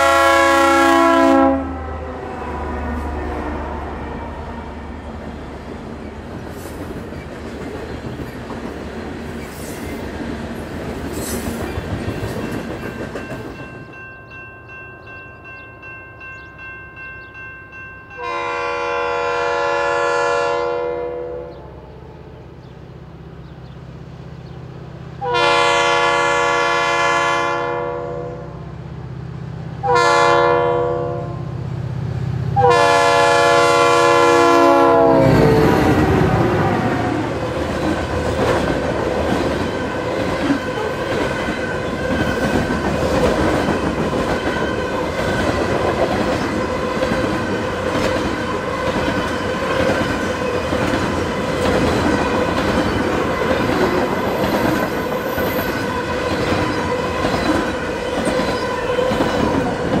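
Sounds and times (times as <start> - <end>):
locomotive air horn blasts: 0.0 - 4.2, 18.2 - 22.0, 25.2 - 28.6, 29.8 - 31.5, 32.6 - 36.8.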